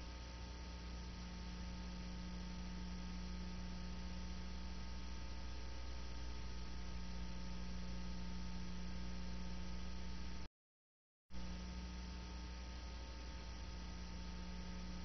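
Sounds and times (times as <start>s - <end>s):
electrical hum: 0.0s - 10.5s, 11.3s - 15.0s.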